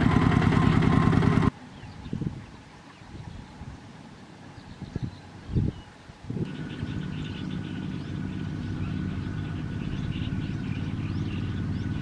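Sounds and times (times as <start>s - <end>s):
walking tractor diesel engine running: 0.0s - 1.5s.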